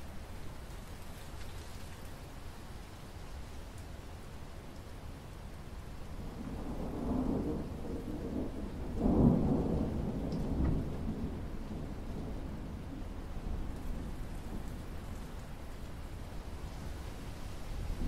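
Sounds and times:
rain falling on water: 0.0 - 18.0
low roll of thunder: 6.1 - 18.0.

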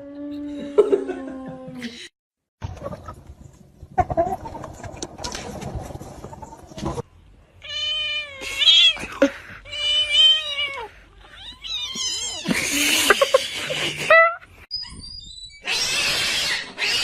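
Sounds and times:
cats meowing: 7.6 - 12.5
cats crying roughly: 7.6 - 13.2, 15.6 - 17.0.

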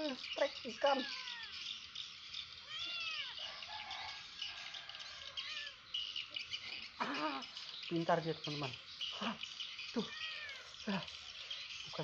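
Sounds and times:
birds chirping: 0.0 - 12.0
insects chirping: 0.0 - 12.0
cat meowing: 2.6 - 3.4, 10.0 - 10.7.

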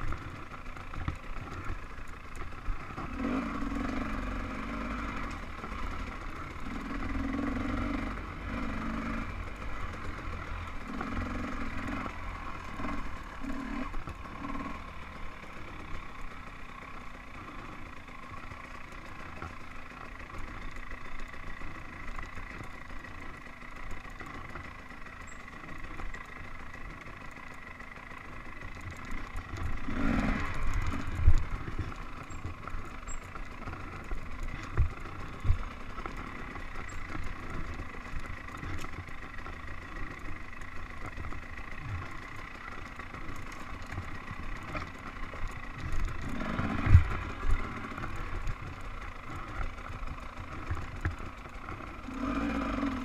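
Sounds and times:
dirt bike engine revving: 2.6 - 53.0.

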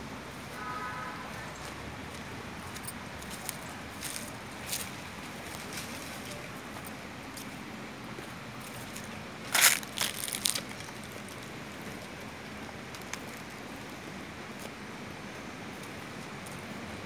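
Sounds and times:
crunching crackle: 8.9 - 11.5.

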